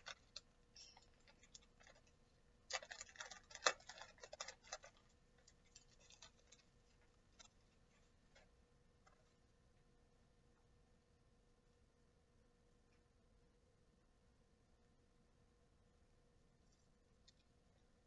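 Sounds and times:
plastic package crinkling: 0.0s - 7.6s.

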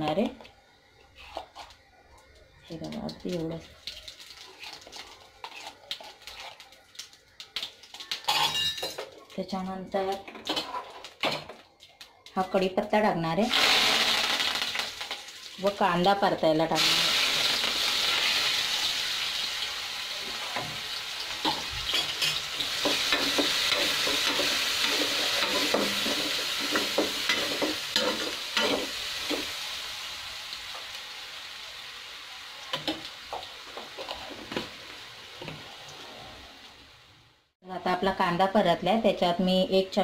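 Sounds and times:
onion sizzling in hot oil: 0.0s - 9.0s, 12.3s - 40.0s
spatula scraping a pan: 21.5s - 29.5s.

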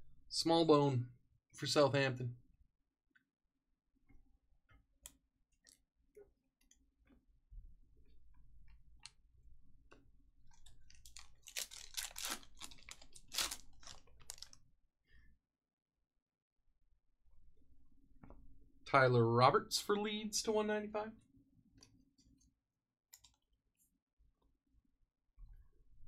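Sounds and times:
wrapper tearing and crumpling: 10.9s - 14.6s.

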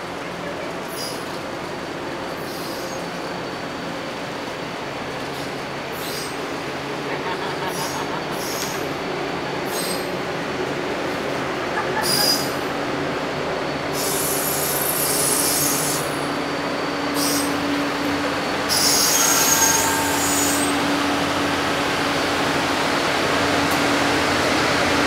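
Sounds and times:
diesel locomotive hum: 0.0s - 25.0s
train wheels rumbling on rail: 0.0s - 25.0s
train wheel squeal: 0.8s - 1.4s, 2.3s - 4.2s, 5.3s - 6.4s, 7.6s - 9.0s, 9.6s - 10.2s, 12.0s - 21.4s.

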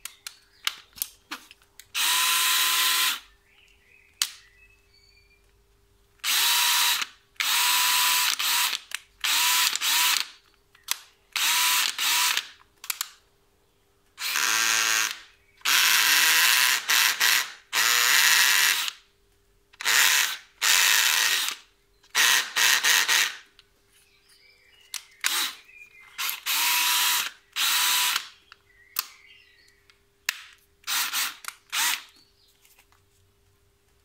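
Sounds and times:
cordless drill motor bursts: 2.0s - 3.3s, 6.2s - 10.3s, 11.4s - 12.5s, 14.2s - 19.0s, 19.8s - 23.4s, 25.2s - 25.6s, 26.2s - 28.3s, 30.9s - 32.1s.

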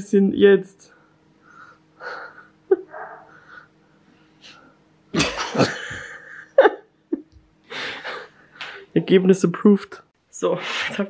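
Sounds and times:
person coughing: 5.2s - 6.2s.

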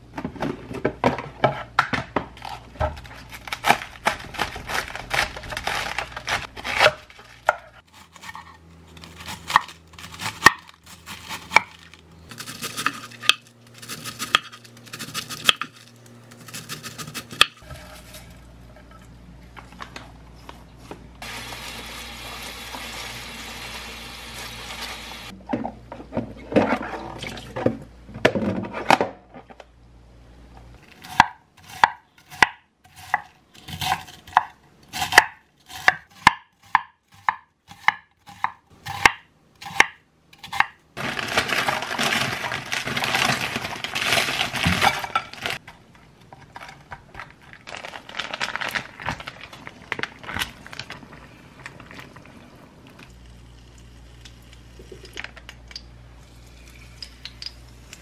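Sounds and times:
knife slicing cabbage: 2.4s - 15.8s, 31.0s - 40.8s.

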